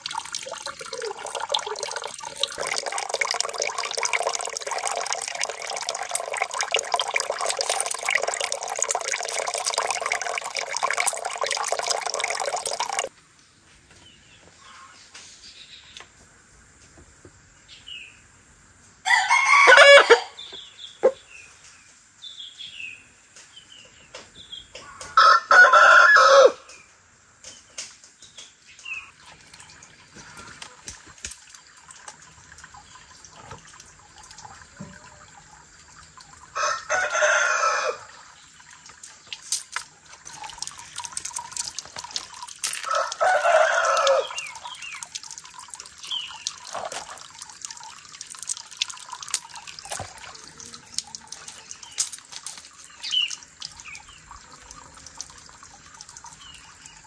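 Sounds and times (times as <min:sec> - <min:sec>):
tap water running: 0:00.0 - 0:13.1, 0:29.1 - 0:57.0
rooster crowing: 0:19.0 - 0:20.4, 0:25.2 - 0:26.6, 0:36.6 - 0:38.1, 0:42.8 - 0:44.5.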